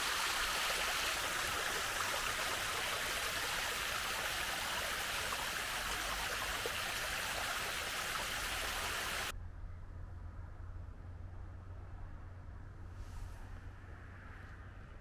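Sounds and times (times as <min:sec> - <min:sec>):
water rushing over rock: 0:00.0 - 0:09.3.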